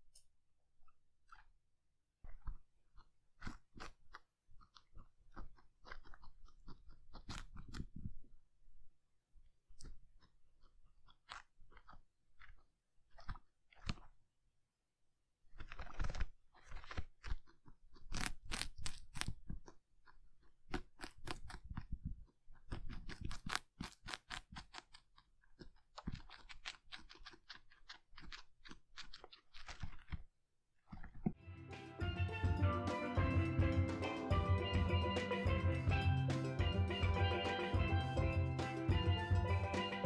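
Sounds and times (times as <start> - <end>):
guinea pig chewing celery: 0.8 - 1.6, 2.2 - 14.4, 15.4 - 31.8.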